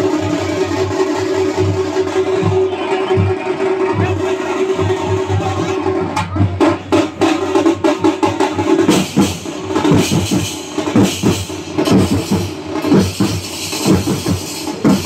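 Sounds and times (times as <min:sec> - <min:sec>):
drums beaten in fast rhythm: 0:00.0 - 0:15.0
large hand cymbals: 0:07.1 - 0:15.0.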